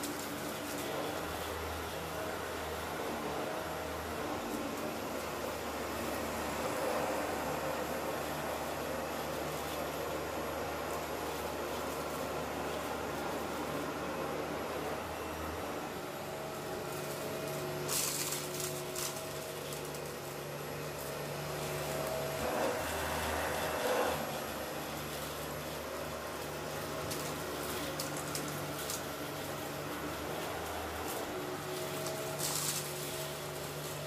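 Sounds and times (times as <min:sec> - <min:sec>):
vacuum cleaner humming: 0:00.0 - 0:34.0
debris crackles: 0:16.8 - 0:22.4, 0:25.0 - 0:34.0.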